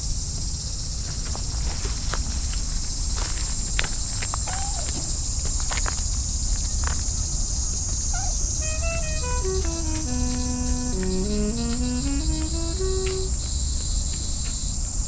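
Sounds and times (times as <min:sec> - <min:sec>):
footsteps on gravel and grass: 0:01.2 - 0:06.0
simple stepping melody: 0:08.6 - 0:13.4.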